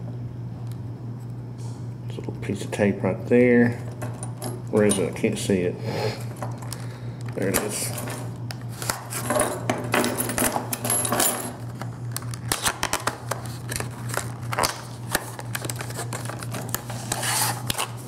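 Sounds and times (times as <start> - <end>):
steady low hum: 0.0 - 18.0
keys clinking on key ring: 9.2 - 11.6
paperboard box scraping and rustling: 15.2 - 18.0.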